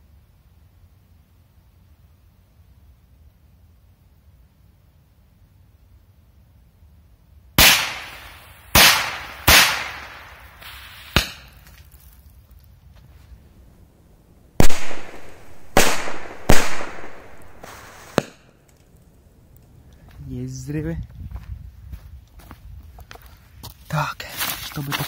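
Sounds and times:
firecrackers exploding: 0:07.6 - 0:12.3, 0:14.6 - 0:19.1.

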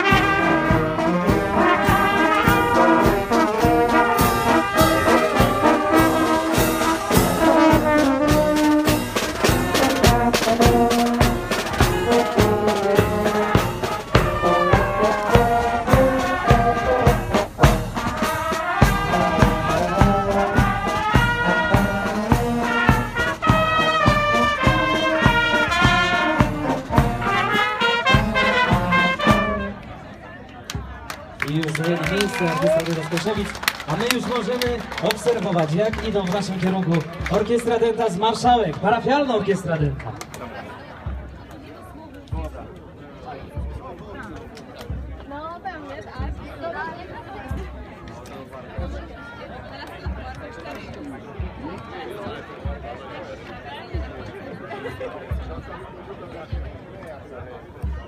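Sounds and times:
brass band playing a march: 0:00.0 - 0:30.1.

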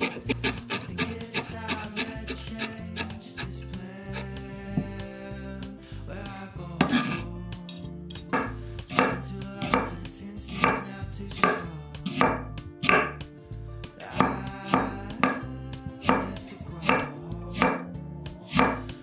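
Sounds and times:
knife slicing on wooden board: 0:00.0 - 0:03.5, 0:06.8 - 0:07.2.

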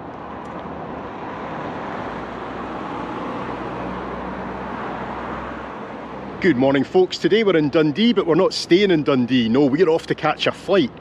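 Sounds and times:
road traffic: 0:00.0 - 0:11.0.

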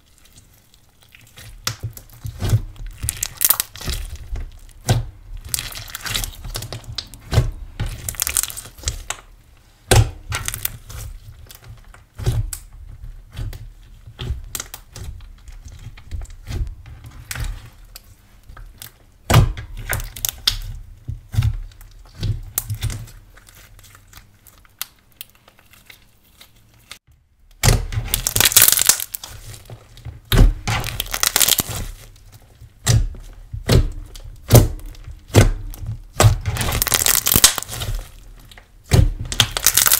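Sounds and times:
slime clicking and popping: 0:02.9 - 0:07.2, 0:07.9 - 0:09.2, 0:27.6 - 0:29.3, 0:30.8 - 0:31.8, 0:33.6 - 0:38.1, 0:38.9 - 0:39.9.

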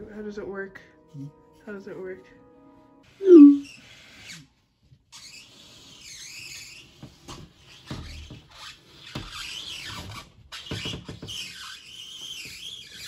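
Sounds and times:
marker squeaking on wood: 0:03.2 - 0:04.5, 0:05.1 - 0:13.0.

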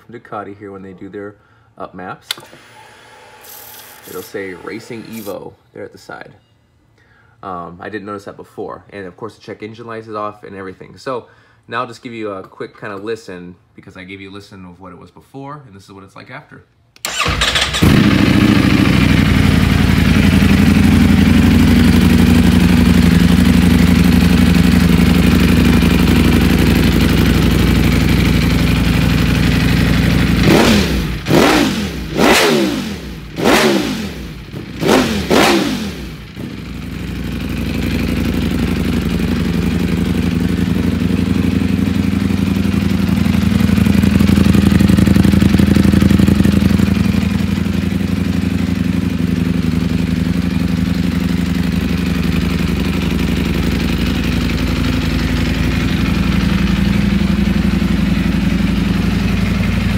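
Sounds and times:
motorcycle engine idling and revving: 0:17.1 - 0:59.9.

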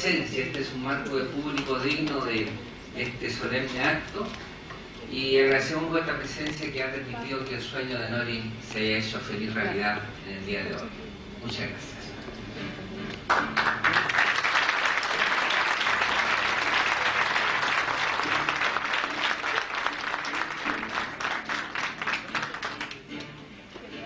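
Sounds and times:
audience applauding: 0:13.3 - 0:23.3.

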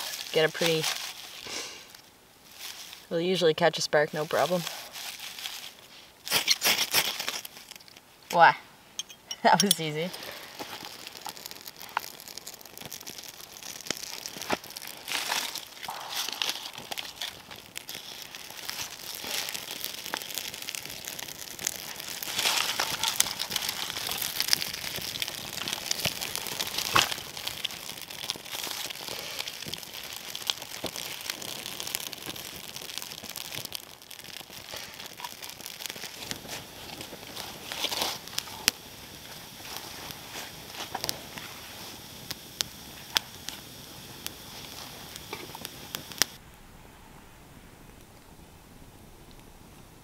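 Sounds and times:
twigs being handled: 0:00.0 - 0:03.1, 0:04.2 - 0:08.0, 0:09.4 - 0:41.6
campfire crackling and popping: 0:00.0 - 0:50.0.

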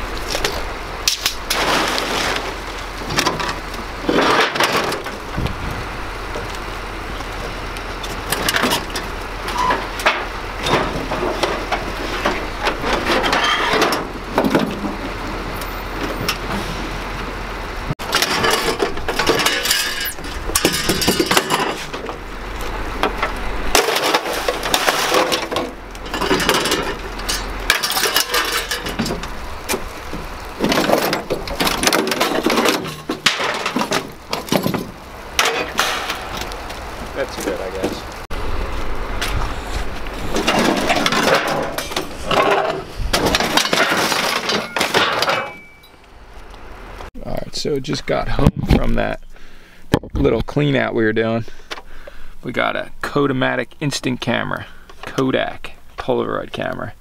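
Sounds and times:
steady low rumble: 0:00.0 - 0:44.1
scrap metal clattering: 0:00.2 - 0:05.6, 0:08.0 - 0:15.2, 0:18.0 - 0:36.7, 0:39.3 - 0:46.0.

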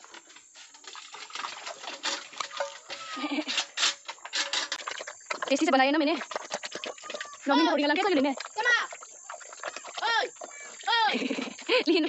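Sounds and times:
feed splashing into a wooden trough: 0:00.0 - 0:07.4
feed sloshing in a metal bucket: 0:00.0 - 0:12.0
pig grunting: 0:04.8 - 0:11.6.

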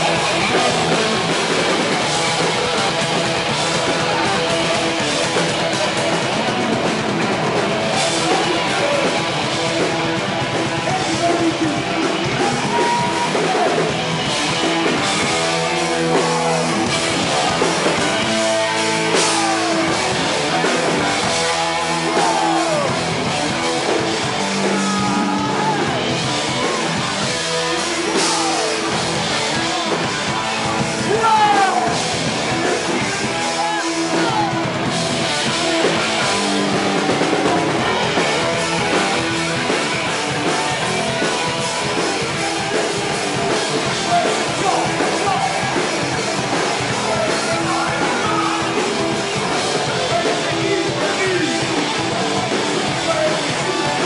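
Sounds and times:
distorted electric guitars: 0:00.0 - 0:54.0
drum kit: 0:00.0 - 0:54.0
live heavy rock band: 0:00.0 - 0:54.0
shouted vocals: 0:10.7 - 0:14.0, 0:15.7 - 0:27.0, 0:27.7 - 0:30.1, 0:30.7 - 0:32.0, 0:32.8 - 0:34.9, 0:40.7 - 0:52.1.

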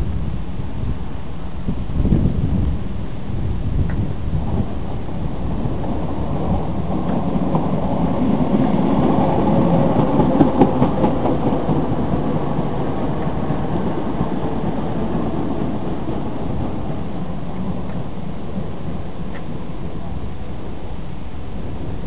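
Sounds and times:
train wheels clicking over rail joints: 0:05.7 - 0:20.0.

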